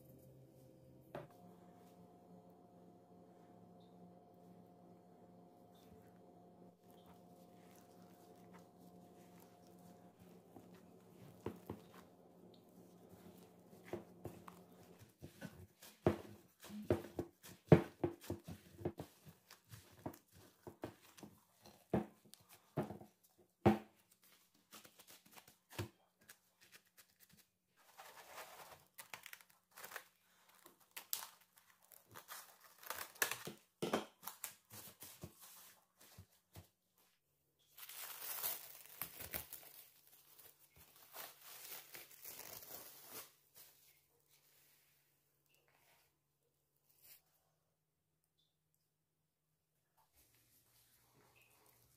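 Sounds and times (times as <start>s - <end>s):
dough slapping and squelching: 6.9s - 23.0s
cling film crinkling and tearing: 24.6s - 35.1s, 37.7s - 43.5s.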